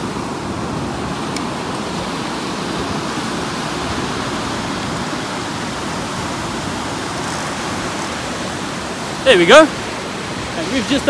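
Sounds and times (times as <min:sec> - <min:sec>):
surf breaking on a beach: 0:00.0 - 0:11.0.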